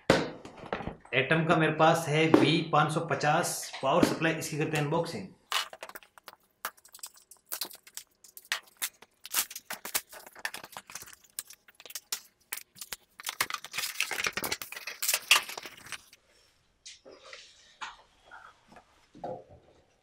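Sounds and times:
bubble-wrap crinkling: 5.5 - 16.2.

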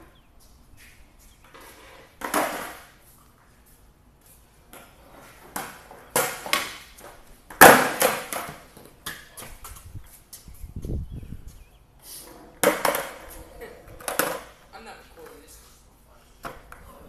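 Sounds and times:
skateboard clattering on concrete: 1.4 - 3.0, 4.7 - 9.8, 12.2 - 15.6.

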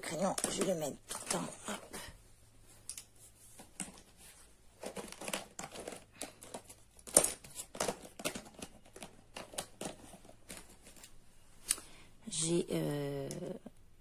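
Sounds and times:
packaging crinkling and rustling: 3.4 - 11.2.

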